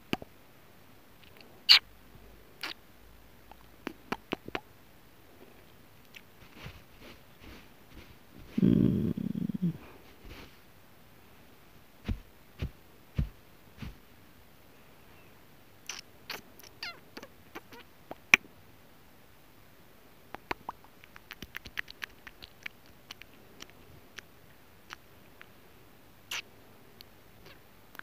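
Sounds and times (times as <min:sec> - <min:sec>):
soft thumps: 0:12.0 - 0:14.0.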